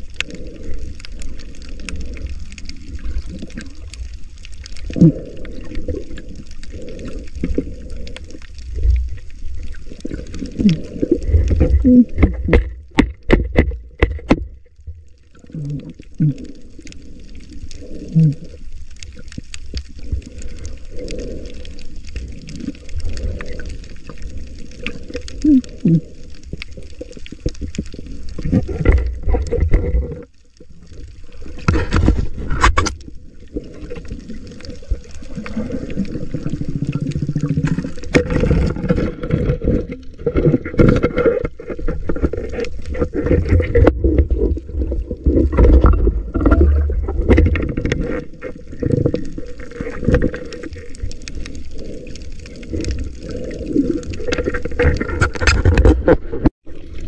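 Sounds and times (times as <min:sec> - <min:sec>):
underwater rumble and gurgling: 0:00.0 - 0:57.0
underwater clicks and knocks: 0:09.9 - 0:16.0, 0:26.5 - 0:30.4, 0:31.5 - 0:33.1, 0:36.4 - 0:51.5, 0:52.2 - 0:56.8.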